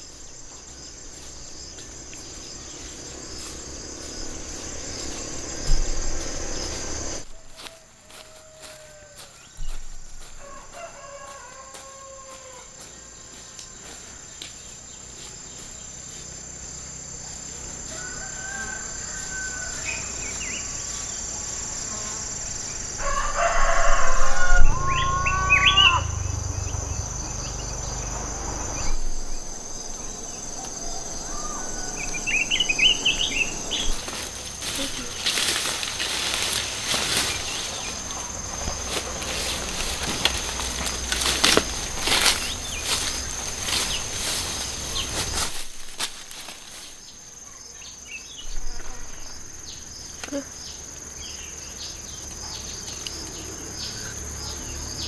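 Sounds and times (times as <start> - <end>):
birds calling: 0.0 - 7.8, 22.6 - 47.2
insects whining: 0.0 - 55.0
low rumble: 0.9 - 7.3, 23.8 - 45.2
rooster crowing: 2.3 - 14.4, 17.6 - 21.0, 22.8 - 45.3.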